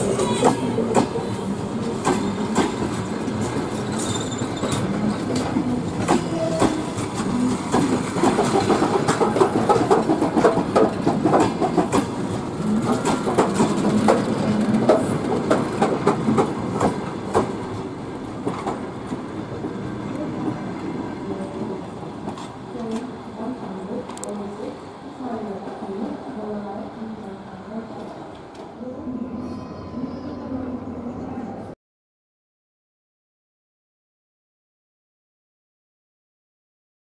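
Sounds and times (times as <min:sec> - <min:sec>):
train rumble: 0:00.0 - 0:31.6
train wheels clacking over rail joints: 0:02.0 - 0:19.2
wheel squeals: 0:03.7 - 0:04.9.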